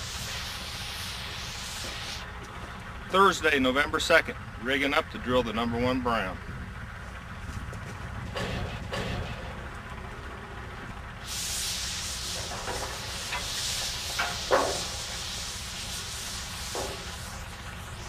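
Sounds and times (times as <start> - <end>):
air venting hiss: 0.0 - 2.4, 11.2 - 18.0
low rumble of engines: 0.0 - 18.0
metallic clank: 8.3 - 9.6, 12.3 - 15.1.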